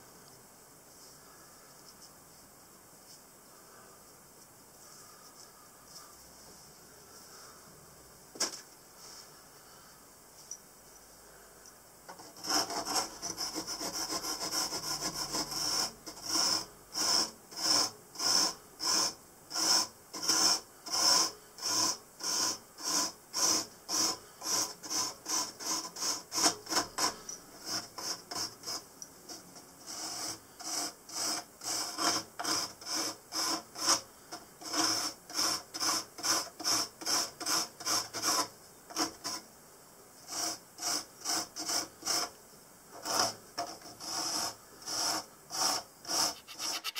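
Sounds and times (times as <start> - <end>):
blade rasping into insulation board: 12.1 - 34.0, 34.6 - 39.4, 40.3 - 42.3, 43.0 - 46.9.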